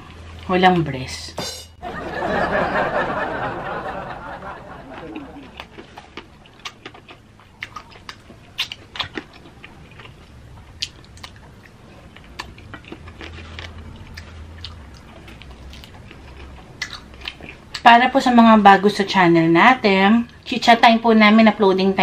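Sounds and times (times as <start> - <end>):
chewing crispy fried chicken: 4.8 - 17.9.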